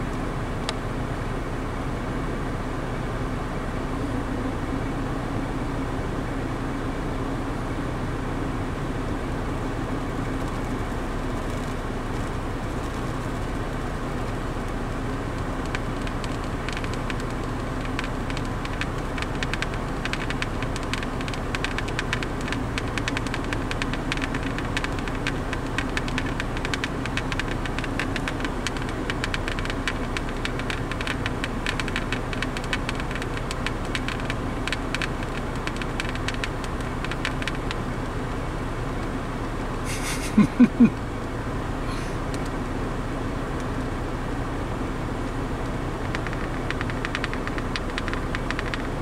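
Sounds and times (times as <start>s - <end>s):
vehicle engine idling: 0.0s - 49.0s
fine irregular ticking: 10.2s - 42.6s, 45.1s - 49.0s.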